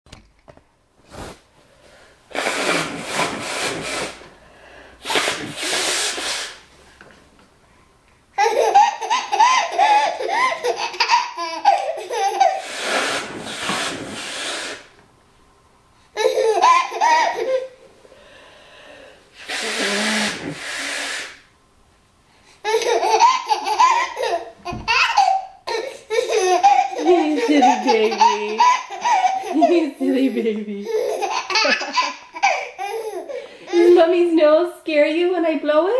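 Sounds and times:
woman blowing her nose: 0:02.3 - 0:06.7, 0:12.4 - 0:15.0, 0:19.3 - 0:21.5, 0:25.8 - 0:29.8
baby laughing: 0:08.4 - 0:12.8, 0:16.2 - 0:17.8, 0:22.6 - 0:34.1
baby crying out: 0:22.6 - 0:30.2.

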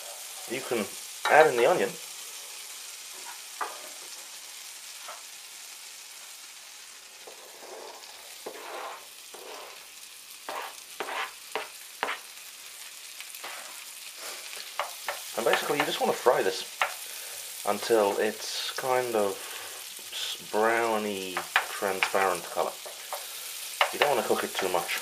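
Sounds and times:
butter sizzling in frying pan: 0:00.0 - 0:25.0
wooden spoon scraping chopping board: 0:07.2 - 0:09.8, 0:10.5 - 0:12.2, 0:13.4 - 0:14.4.

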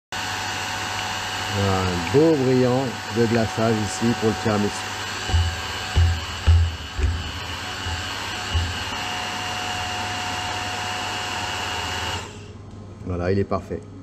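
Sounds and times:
immersion blender running: 0:00.2 - 0:12.5
low thumps: 0:05.2 - 0:09.3.

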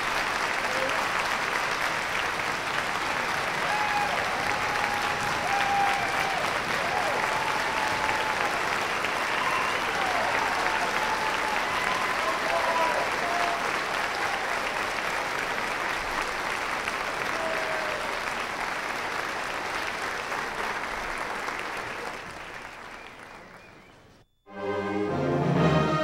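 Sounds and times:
audience applauding: 0:00.0 - 0:24.4
music with sustained notes: 0:24.5 - 0:26.0.

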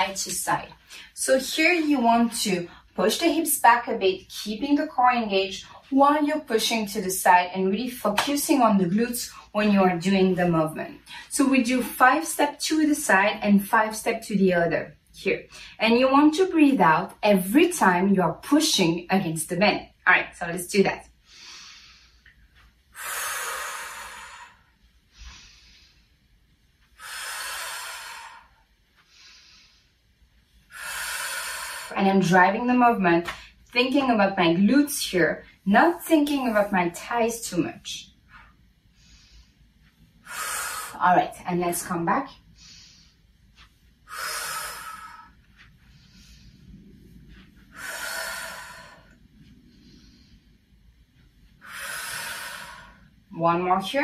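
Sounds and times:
faint breaths: 0:21.2 - 0:32.0, 0:38.1 - 0:41.0, 0:42.3 - 0:53.3.

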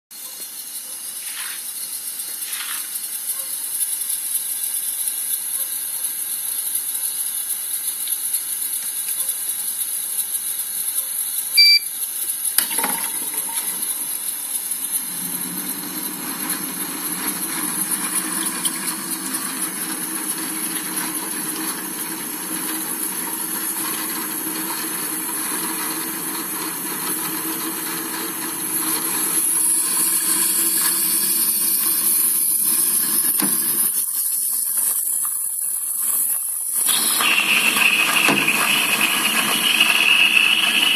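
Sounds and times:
steam autoclave high hiss: 0:00.2 - 0:40.9
short electronic beep: 0:11.6 - 0:12.0.

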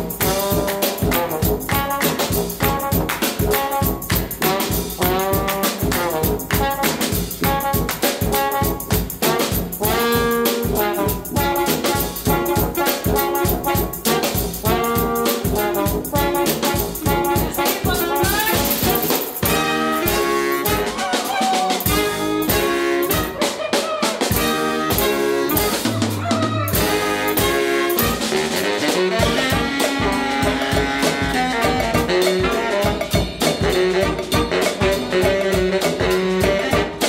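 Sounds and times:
horns playing melody: 0:00.0 - 0:37.0
steady drum beat: 0:00.0 - 0:37.0.

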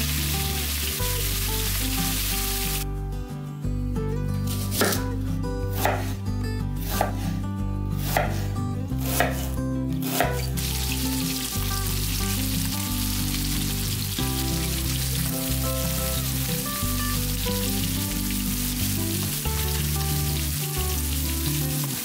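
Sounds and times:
food sizzling in hot oil: 0:00.0 - 0:02.8, 0:10.4 - 0:22.0
knife chopping on wooden board: 0:04.8 - 0:05.0, 0:05.8 - 0:06.2, 0:06.9 - 0:07.2, 0:08.0 - 0:10.5.

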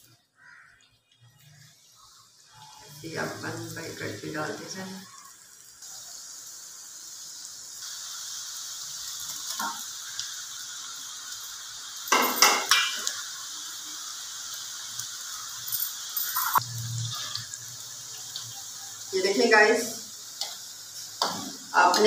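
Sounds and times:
dough sizzling in hot oil: 0:00.0 - 0:22.0
metal utensil clinking on pan: 0:12.1 - 0:13.1, 0:15.9 - 0:16.6.

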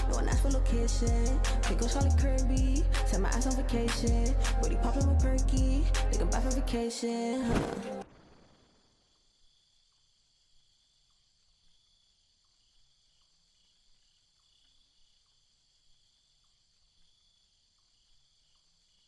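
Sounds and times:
insects chirring: 0:08.0 - 0:19.0.

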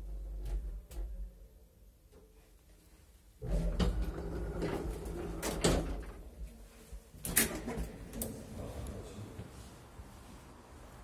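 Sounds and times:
elevator low rumble: 0:03.4 - 0:06.2.

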